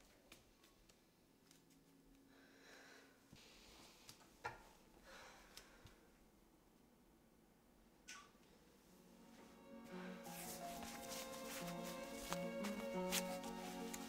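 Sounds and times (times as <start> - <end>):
soft rustles: 10.2 - 14.0.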